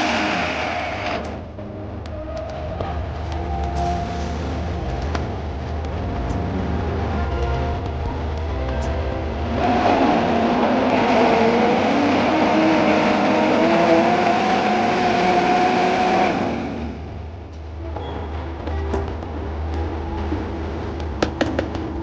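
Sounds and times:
blender motor running: 0.0s - 1.3s.

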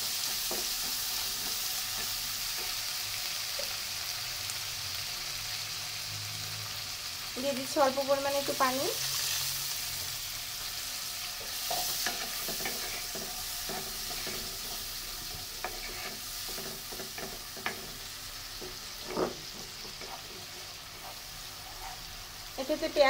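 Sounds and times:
onions sizzling in oil: 0.0s - 23.0s
wooden spoon scraping pan: 11.7s - 22.2s.

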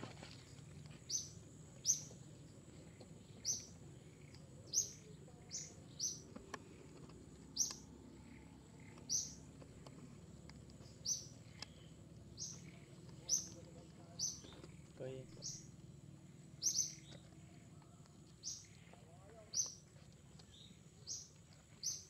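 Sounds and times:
bird chirping: 0.4s - 22.0s.

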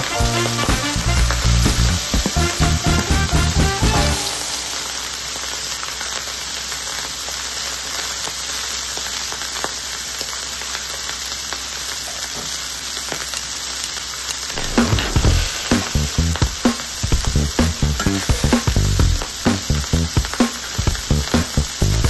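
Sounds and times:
background music: 0.0s - 5.2s, 14.6s - 20.2s
food sizzling on a griddle: 0.0s - 22.0s.

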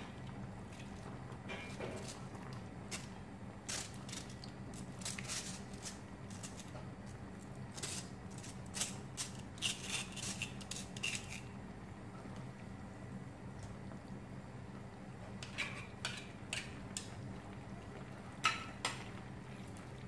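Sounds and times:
steady low hum: 0.0s - 20.0s
pasta scraping on wire mesh: 2.9s - 6.8s, 7.7s - 11.5s.

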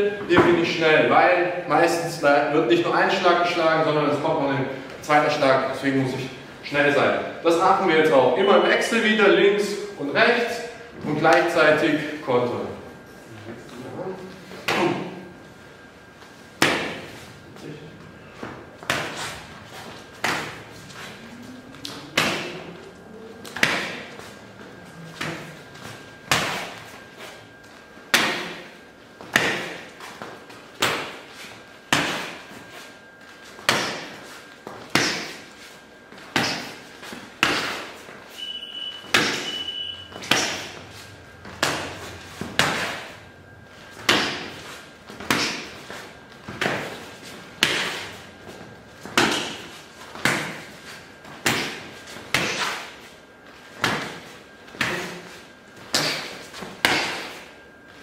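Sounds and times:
slaps of strikes on arms: 29.3s - 29.8s.

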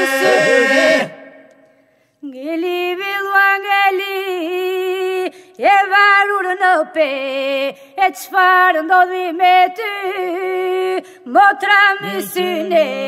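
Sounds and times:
unaccompanied polyphonic folk singing: 0.0s - 1.5s, 12.0s - 13.0s.

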